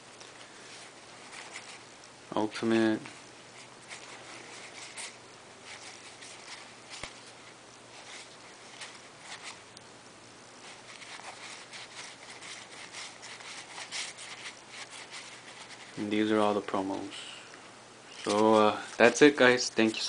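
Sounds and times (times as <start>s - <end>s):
trading cards flipped by hand: 3.9s - 7.4s, 18.1s - 19.1s.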